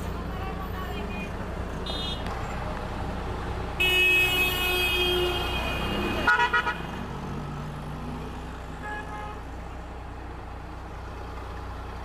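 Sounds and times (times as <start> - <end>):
bus engine droning: 0.0 - 12.0
vehicle horn: 1.8 - 2.3, 3.8 - 6.9, 8.8 - 9.4.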